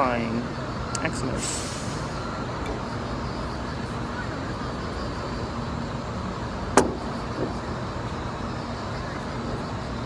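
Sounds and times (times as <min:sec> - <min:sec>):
distant road traffic rumble: 0:00.0 - 0:10.0.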